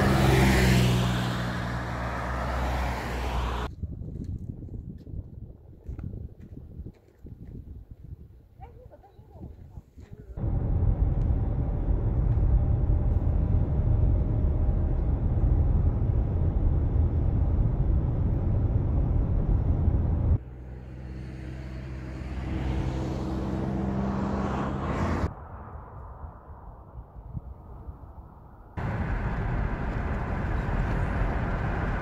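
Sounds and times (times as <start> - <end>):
car road and engine noise: 0.0 - 3.7, 10.4 - 26.7, 28.5 - 32.0.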